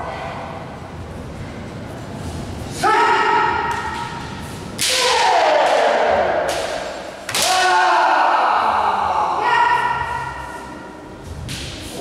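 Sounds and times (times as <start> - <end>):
bamboo sword strikes cracking: 4.8 - 7.8.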